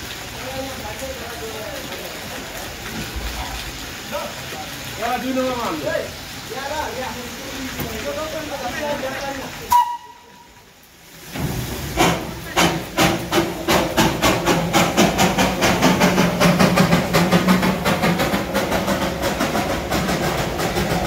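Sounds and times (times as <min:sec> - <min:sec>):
steam hissing: 0:09.6 - 0:21.0
steam locomotive exhaust chuffs: 0:11.7 - 0:21.0.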